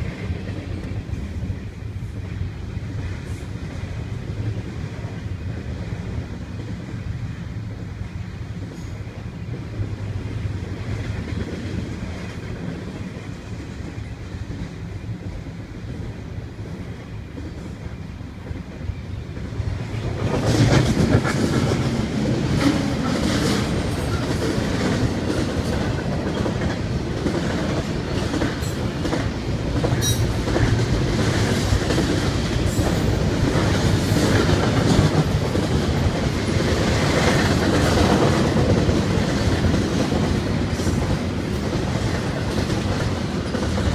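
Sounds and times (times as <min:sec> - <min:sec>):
freight train rumbling past: 0:00.0 - 0:43.9.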